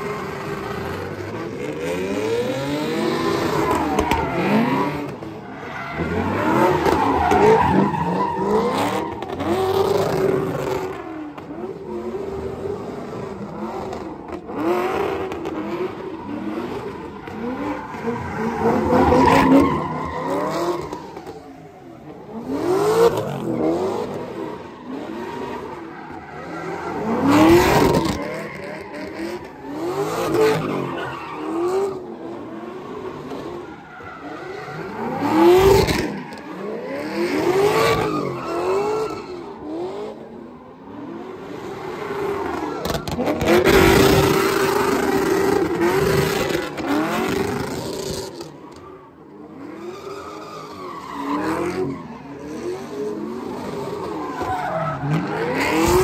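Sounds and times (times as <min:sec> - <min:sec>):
tires squealing: 0:00.0 - 0:56.0.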